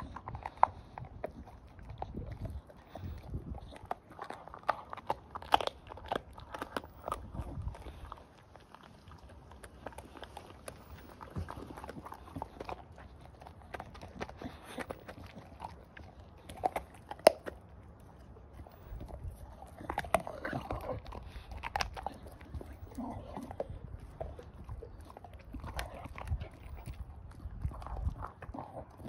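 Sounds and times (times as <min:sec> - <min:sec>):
dog chewing bone: 0:00.0 - 0:29.0
loud bone crack: 0:16.4 - 0:17.6.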